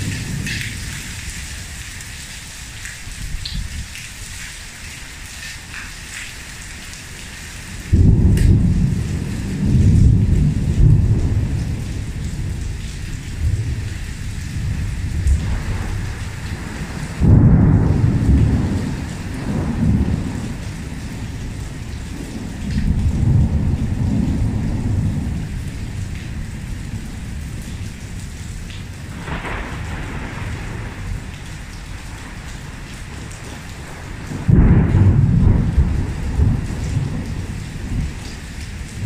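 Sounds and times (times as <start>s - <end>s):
heavy rain on tiled patio: 0.0s - 39.0s
thunder peals: 7.9s - 12.8s, 14.6s - 26.0s, 29.1s - 38.2s.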